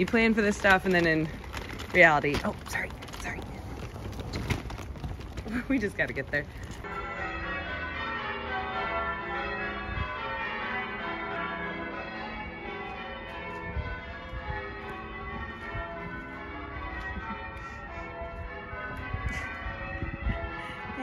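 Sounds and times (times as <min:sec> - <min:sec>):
church bells pealing: 0:05.9 - 0:21.0.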